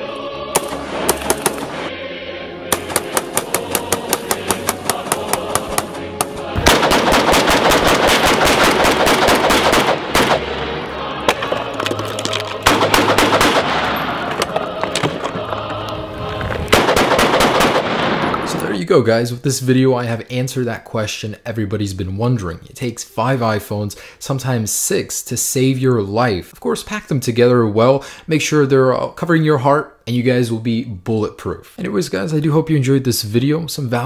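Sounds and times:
background music: 0.0s - 19.9s
rifle rapid fire: 0.6s - 1.8s, 6.6s - 10.6s, 12.6s - 14.2s, 16.7s - 18.6s.

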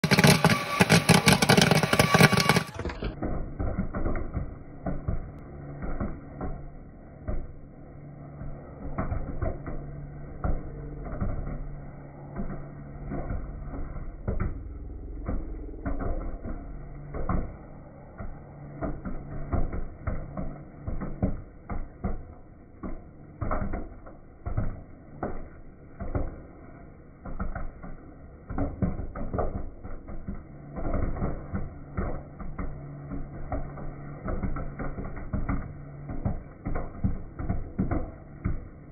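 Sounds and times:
popcorn popping: 0.0s - 6.6s, 8.3s - 26.6s, 27.2s - 38.9s
stirring motor hum: 0.0s - 26.5s.

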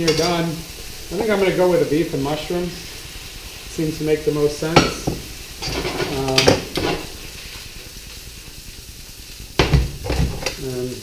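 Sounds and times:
meat and mushrooms sizzling: 0.0s - 11.0s
utensil stirring in pan: 0.0s - 11.0s.

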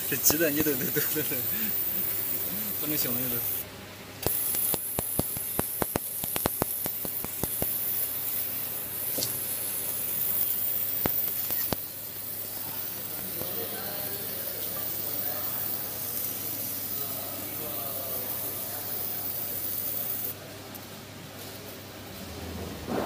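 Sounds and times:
laser cutter hissing: 0.0s - 20.4s
sharp clicks: 4.2s - 7.8s, 11.0s - 11.8s.

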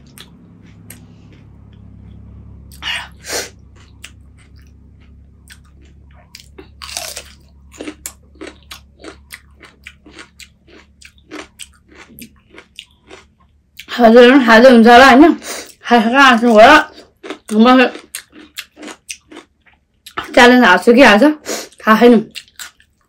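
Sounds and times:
crunchy chewing: 0.0s - 13.9s, 16.4s - 20.3s, 21.7s - 23.0s
crisp shells crunching: 5.6s - 13.2s.

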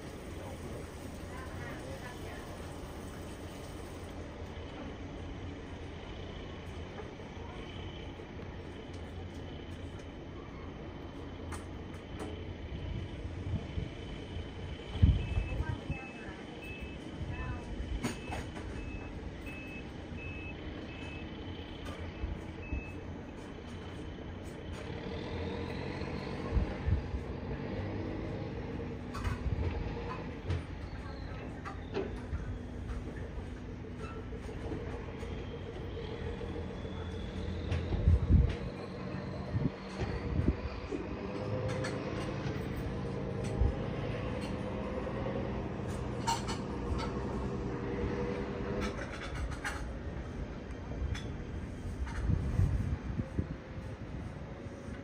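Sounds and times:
diesel engines rumbling: 0.0s - 55.0s
reversing alarm beeping: 15.1s - 17.1s, 18.0s - 21.3s, 34.0s - 39.6s.

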